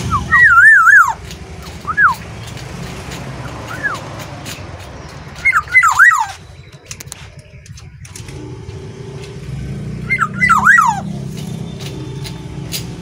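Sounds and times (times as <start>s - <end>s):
bird singing fluty whistles: 0.0s - 2.3s, 3.4s - 4.0s, 5.3s - 8.1s, 10.0s - 11.1s.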